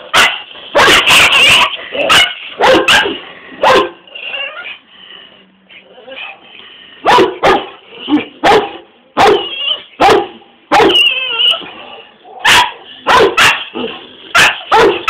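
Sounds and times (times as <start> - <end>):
dogs barking: 0.0 - 4.1, 7.0 - 15.0
dog whining yelp: 0.2 - 3.1, 4.1 - 4.8, 9.2 - 10.0, 10.7 - 12.6.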